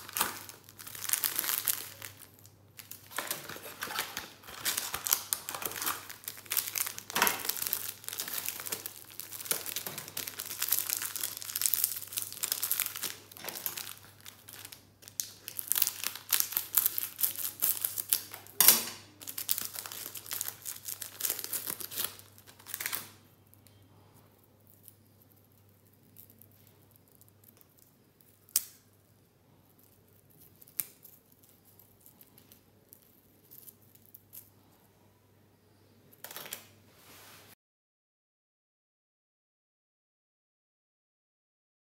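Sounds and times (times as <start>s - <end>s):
foil wrapper crinkling and tearing: 0.0s - 23.2s.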